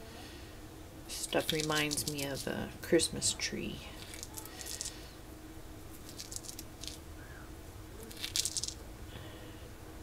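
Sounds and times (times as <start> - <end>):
dried herbs crackling between fingers: 1.1 - 2.5, 3.9 - 5.2, 5.9 - 7.1, 8.0 - 8.8.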